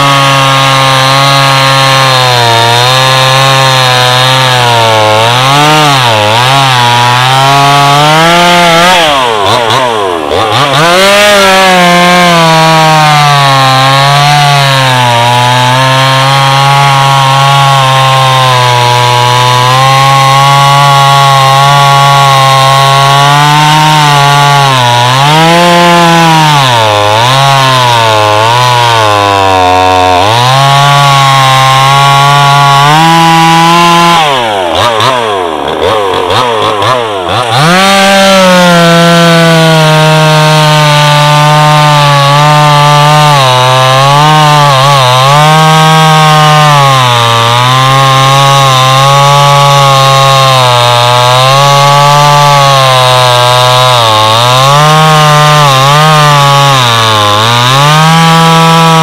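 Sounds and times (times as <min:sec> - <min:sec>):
chainsaw cutting logs: 0:00.0 - 0:59.0.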